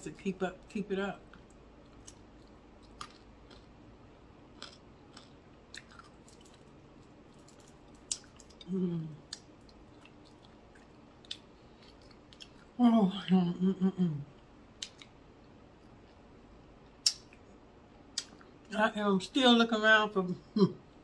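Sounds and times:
close chewing with mouth clicks: 1.3s - 3.7s, 4.6s - 12.8s
person's voice: 8.6s - 9.2s, 12.8s - 14.2s, 18.7s - 20.8s.

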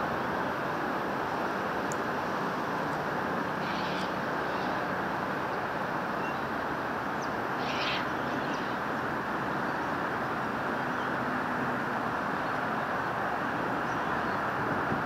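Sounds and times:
short high bird calls: 3.6s - 4.8s, 7.6s - 8.8s.

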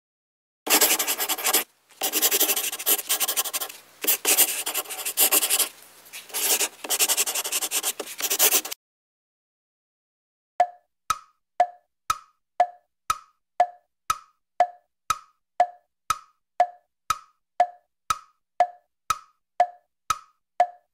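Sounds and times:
crayon scribbling on paper: 0.7s - 8.8s.

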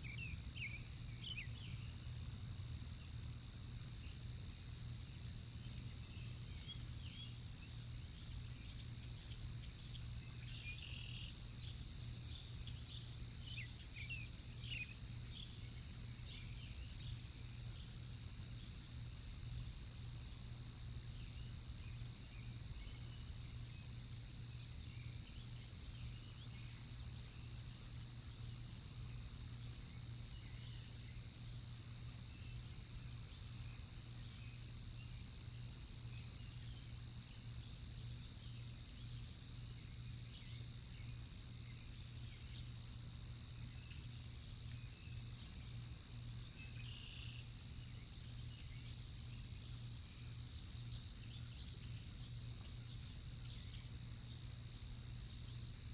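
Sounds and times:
faint bird chirps: 0.0s - 1.9s, 5.6s - 17.2s, 46.2s - 49.5s
constant low hum: 0.0s - 55.9s.

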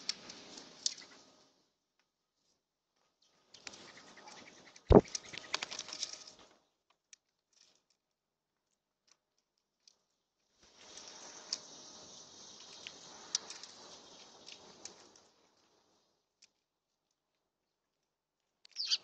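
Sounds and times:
bird wings flapping: 3.6s - 6.5s.

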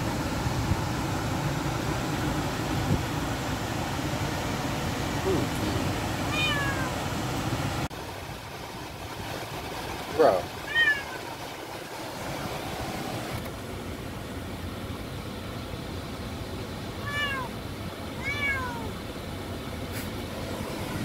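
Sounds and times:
car road noise: 0.0s - 21.0s
cat meowing: 6.3s - 7.0s, 10.7s - 11.3s, 17.0s - 17.6s, 18.2s - 19.0s.

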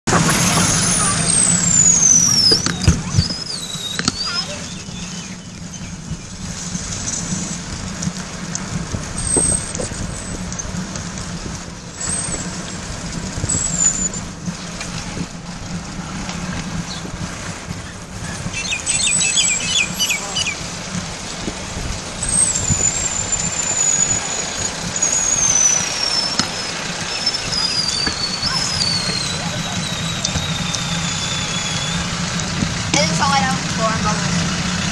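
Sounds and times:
bicycle brake squeal: 0.1s - 6.0s, 9.2s - 10.4s, 12.0s - 12.8s, 13.4s - 14.3s, 18.3s - 20.6s, 22.2s - 32.4s
tyres rolling on concrete: 0.1s - 34.9s
wind rumbling on microphone: 0.1s - 34.9s.

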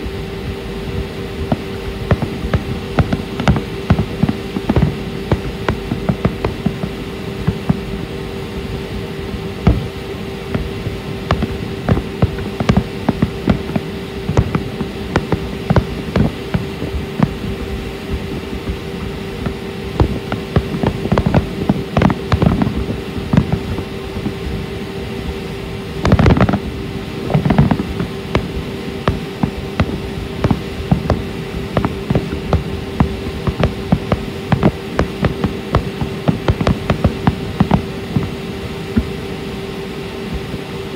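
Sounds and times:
steady hum: 0.0s - 40.9s
fireworks bangs and crackles: 1.1s - 39.2s.

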